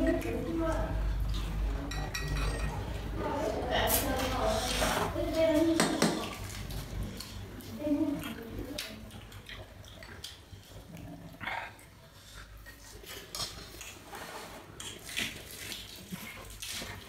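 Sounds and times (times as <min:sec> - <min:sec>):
chewing: 0:06.2 - 0:17.0.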